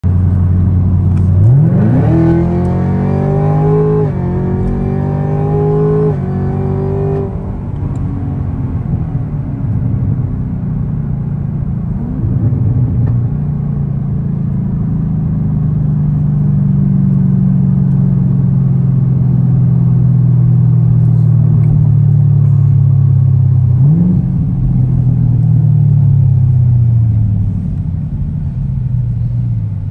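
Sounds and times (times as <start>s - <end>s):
car engine revving: 0.2s - 8.9s, 16.8s - 29.9s.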